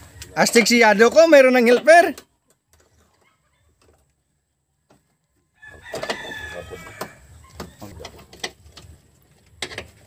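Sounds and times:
rooster crowing: 0:05.5 - 0:07.6.

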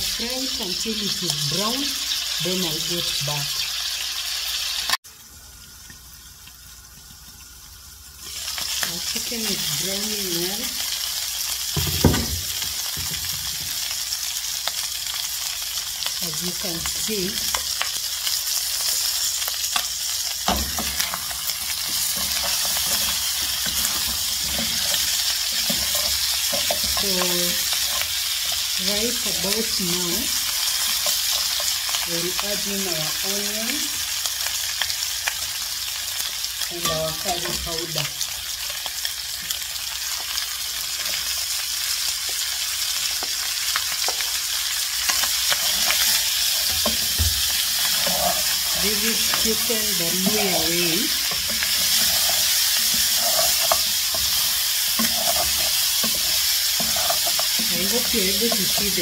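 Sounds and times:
chicken sizzling in oil: 0:00.0 - 0:59.0
wooden spoon stirring onion: 0:16.9 - 0:29.8, 0:30.4 - 0:32.4, 0:44.0 - 0:59.0
spatula scraping and knocking pan: 0:19.8 - 0:29.2, 0:45.1 - 0:59.0.

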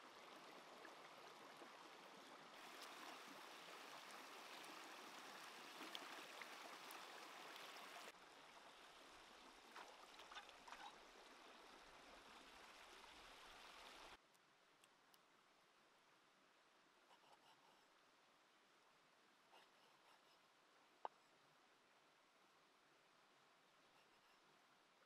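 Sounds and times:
stream water running: 0:00.0 - 0:14.2
small splashes: 0:09.6 - 0:11.6.

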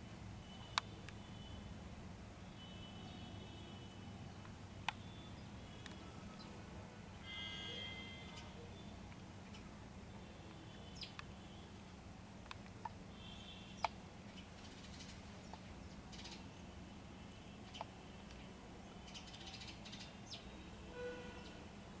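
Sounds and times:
bird chirps: 0:13.7 - 0:14.0.

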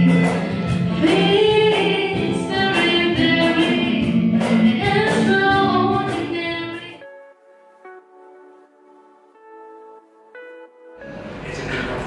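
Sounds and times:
woman singing into microphone: 0:00.0 - 0:07.0
instrumental music: 0:00.0 - 0:12.0.

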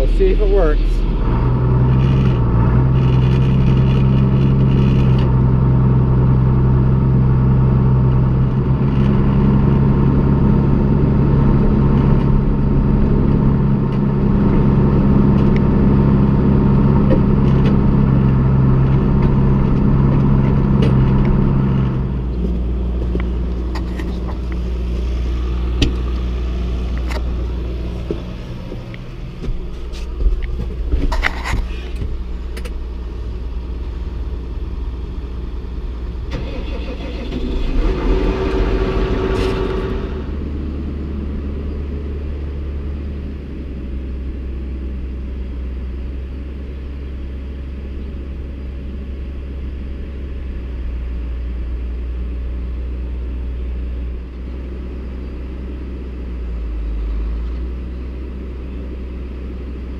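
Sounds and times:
tractor engine droning: 0:00.0 - 0:59.9.

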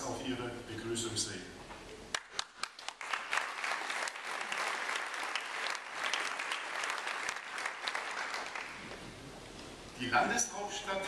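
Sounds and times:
audience applauding: 0:02.1 - 0:09.0.

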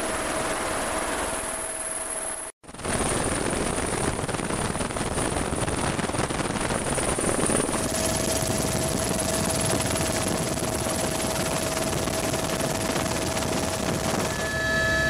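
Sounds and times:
helicopter rotor and engine noise: 0:00.0 - 0:15.0
steady high whine: 0:00.0 - 0:15.0
low steady tone: 0:14.1 - 0:15.0.

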